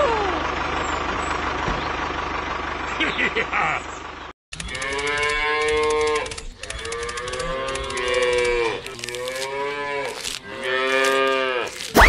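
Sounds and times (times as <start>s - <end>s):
cows mooing: 4.7s - 11.9s.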